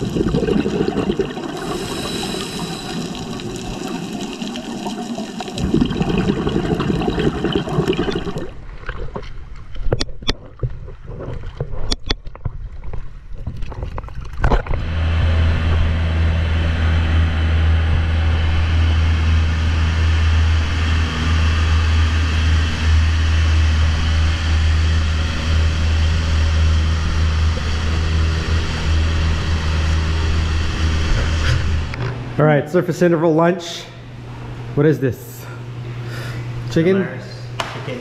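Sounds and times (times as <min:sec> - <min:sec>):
boat engine droning: 0:00.0 - 0:08.7, 0:14.6 - 0:34.8
water sloshing and splashing: 0:00.0 - 0:14.8.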